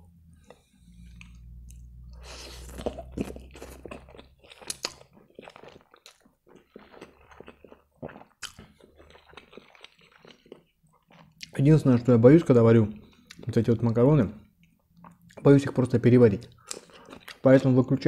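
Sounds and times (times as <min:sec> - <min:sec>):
wet chewing mouth clicks: 0:01.0 - 0:11.6, 0:16.4 - 0:17.4
slurping spaghetti: 0:02.2 - 0:11.2.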